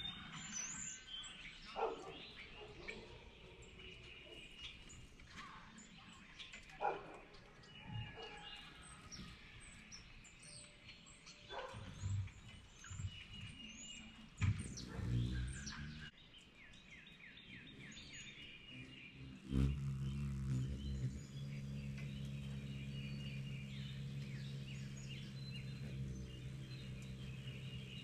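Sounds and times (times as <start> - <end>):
birds chirping: 0.0 - 28.0
hummingbird wings humming: 11.8 - 16.1, 17.5 - 28.0.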